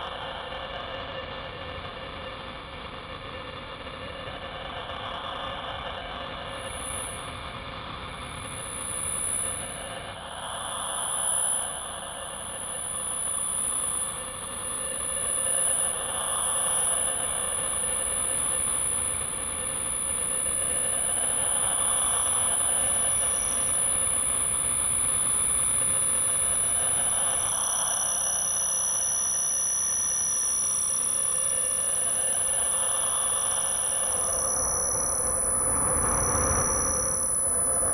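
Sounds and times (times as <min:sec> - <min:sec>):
hazy band of noise: 0:30.9 - 0:37.9.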